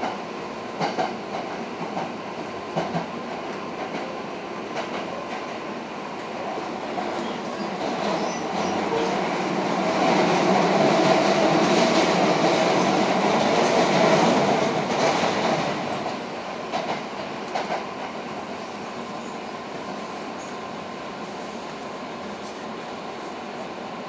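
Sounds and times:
train wheels rumbling on rail: 0.0s - 24.0s
rail-joint clicks: 0.8s - 5.6s, 6.9s - 9.3s, 12.8s - 18.2s.

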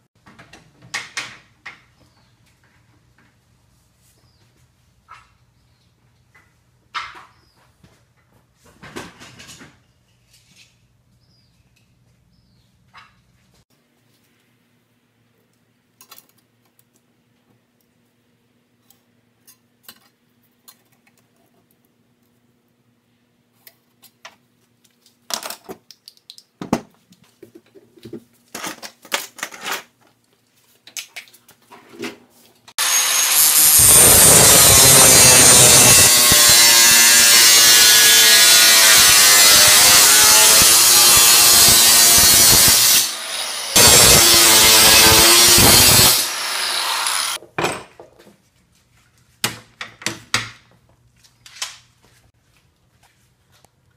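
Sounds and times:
angle grinder cutting metal: 32.8s - 47.4s.

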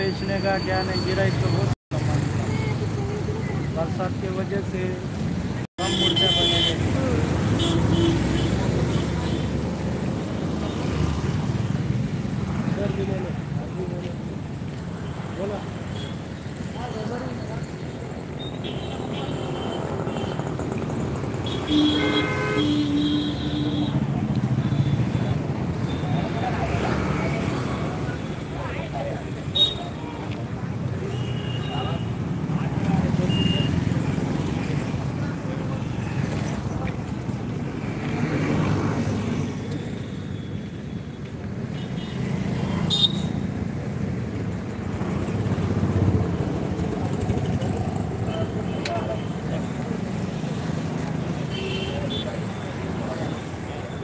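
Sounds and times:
street traffic: 0.0s - 54.0s
motorcycle engines passing: 1.0s - 31.1s, 31.7s - 54.0s
vehicle horn honking: 21.5s - 24.0s.

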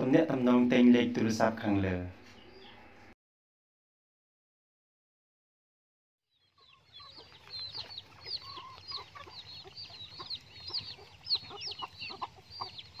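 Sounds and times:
chicken clucking: 6.3s - 13.0s
chicks peeping: 6.3s - 13.0s.

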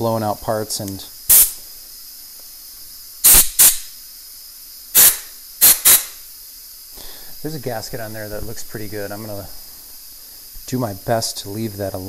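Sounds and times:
faint air compressor hiss: 0.0s - 12.0s
air blow gun blasts: 1.3s - 1.6s, 3.2s - 3.9s, 5.0s - 6.2s.

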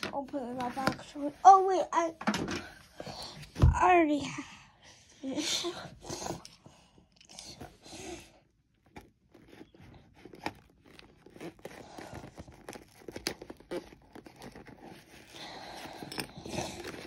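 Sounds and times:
cardboard tearing: 8.9s - 17.0s
screwdriver scraping cardboard: 9.0s - 17.0s.

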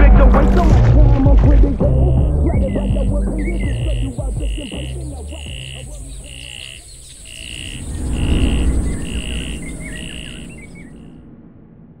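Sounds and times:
bird-like chirps: 2.1s - 11.1s
low rumbling swell: 6.0s - 12.0s.

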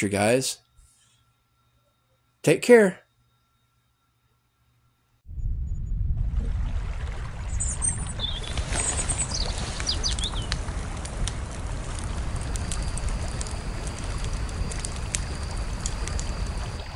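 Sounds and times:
faint high whine: 0.0s - 6.7s, 7.3s - 16.9s
steady low rumble: 5.2s - 16.9s
bird chirps: 7.6s - 10.5s.

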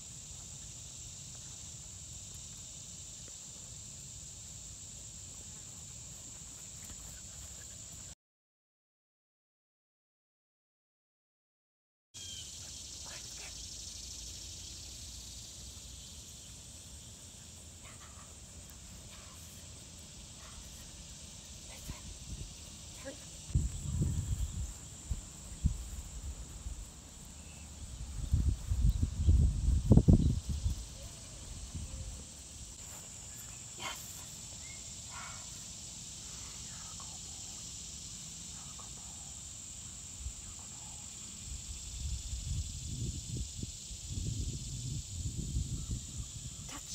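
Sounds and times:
high-pitched insect chorus: 0.0s - 8.2s, 12.2s - 46.9s.

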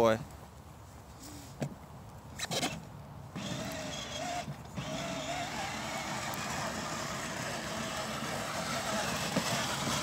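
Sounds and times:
electric toy motor whining: 3.4s - 10.0s.

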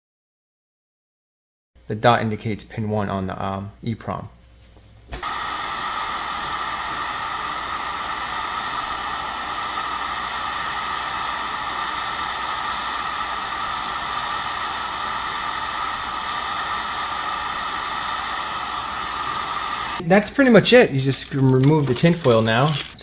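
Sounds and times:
heat gun blowing: 5.2s - 20.0s, 20.8s - 23.0s.

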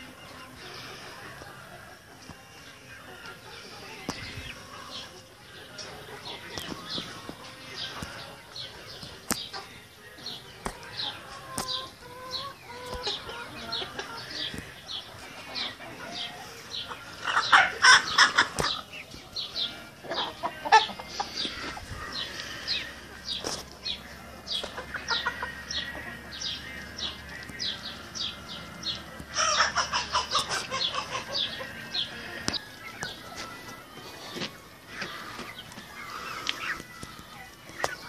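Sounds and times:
chickens clucking and calling: 0.0s - 38.0s
chicken cackling rapidly: 15.6s - 18.9s, 24.7s - 26.5s, 29.2s - 33.2s.

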